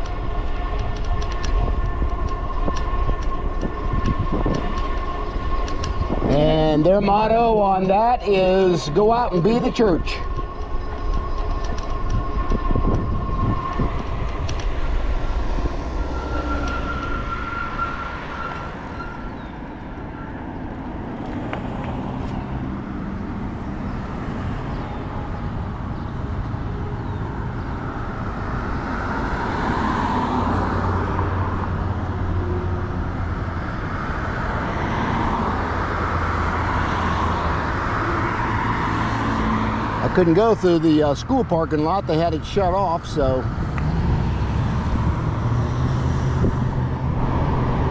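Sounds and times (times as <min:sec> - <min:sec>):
thin steady whine: 0:00.0 - 0:21.4, 0:40.0 - 0:43.9
car passing: 0:00.0 - 0:47.9
road traffic: 0:00.0 - 0:47.9
wind rumbling on microphone: 0:00.0 - 0:47.9.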